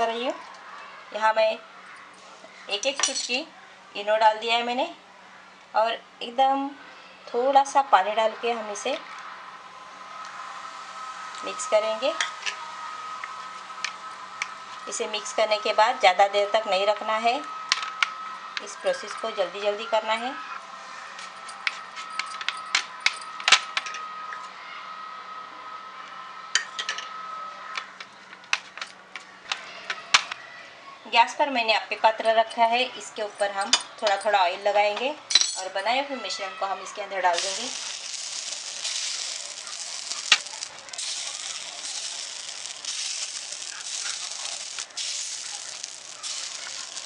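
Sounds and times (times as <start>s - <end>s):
faint high whine: 8.3s - 28.4s, 37.4s - 47.0s
batter sizzling in hot oil: 9.4s - 18.8s, 37.3s - 47.0s.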